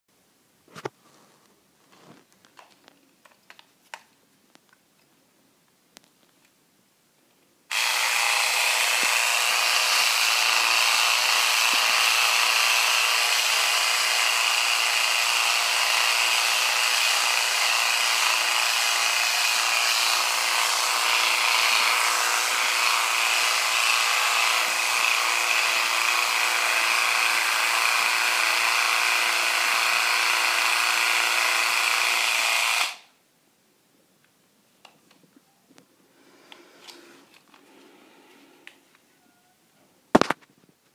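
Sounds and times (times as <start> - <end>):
electric epilator buzzing: 7.7 - 33.1.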